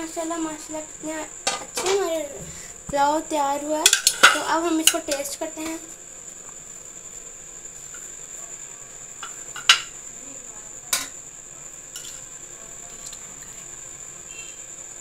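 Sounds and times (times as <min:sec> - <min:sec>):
faint high-pitched whine: 0:00.0 - 0:15.0
spoon scraping: 0:12.0 - 0:12.3.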